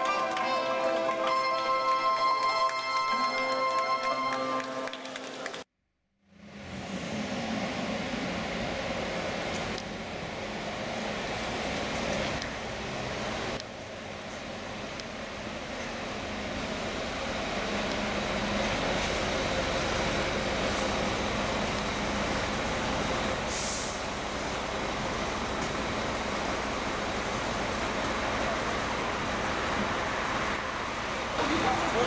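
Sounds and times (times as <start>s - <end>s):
diesel coach engine idling: 12.4s - 32.0s
air brake hiss: 23.4s - 24.1s.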